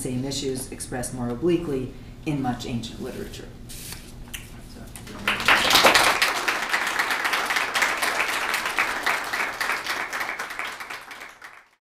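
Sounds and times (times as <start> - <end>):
audience applauding: 5.1 - 11.8.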